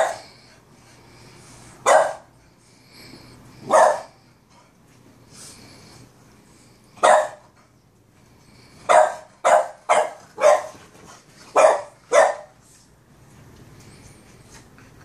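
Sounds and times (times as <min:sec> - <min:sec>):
dog barking: 0:00.0 - 0:00.3, 0:01.8 - 0:02.3, 0:03.6 - 0:04.2, 0:07.0 - 0:07.4, 0:08.9 - 0:10.8, 0:11.5 - 0:12.6.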